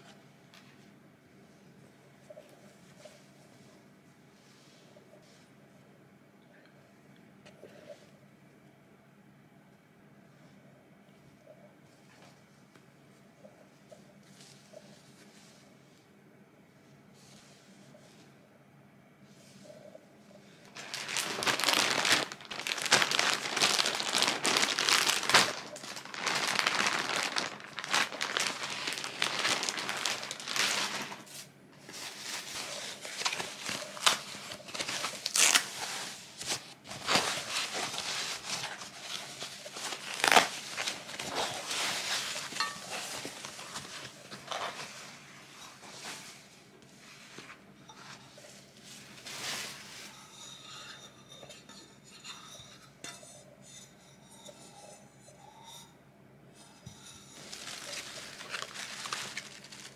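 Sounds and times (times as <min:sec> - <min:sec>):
plastic and foam wrapping crinkling: 0:20.6 - 0:46.5, 0:47.2 - 0:50.8, 0:56.9 - 0:59.9.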